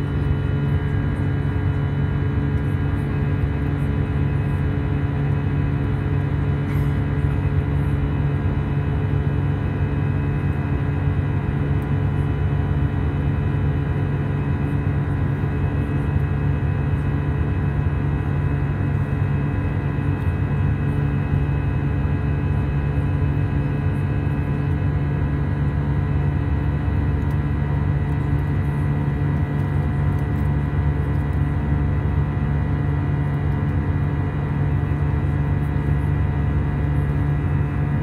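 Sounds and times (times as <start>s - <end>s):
jet engine drone in cabin: 0.0s - 38.0s.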